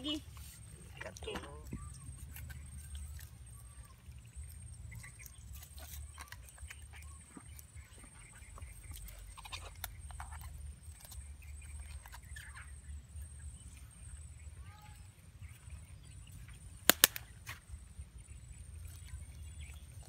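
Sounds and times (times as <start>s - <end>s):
hands tying string in mud: 16.5s - 17.8s.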